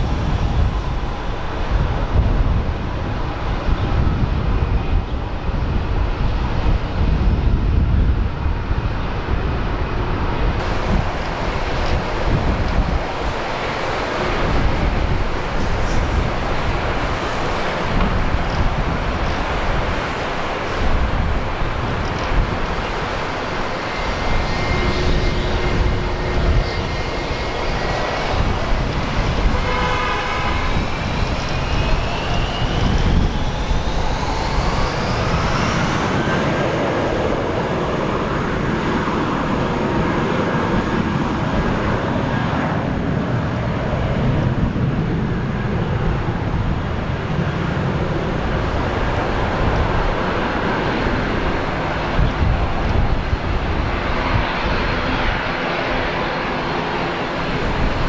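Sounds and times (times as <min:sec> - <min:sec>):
jet airliner engines running: 0:00.0 - 0:58.0
high whine rising in pitch: 0:10.6 - 0:38.7.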